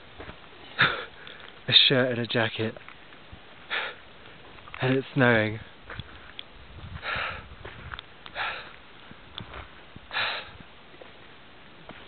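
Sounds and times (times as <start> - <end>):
person breathing hard: 3.7 - 4.0, 6.9 - 8.8, 10.1 - 10.6.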